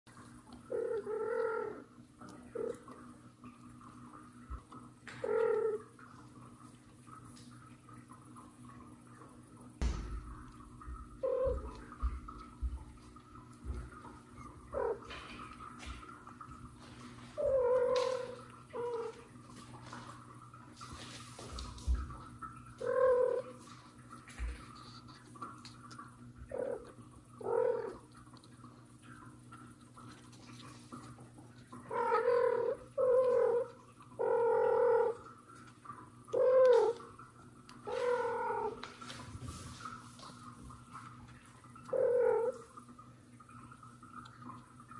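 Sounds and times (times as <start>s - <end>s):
paws thumping on floor: 9.8s - 14.4s, 20.8s - 22.4s.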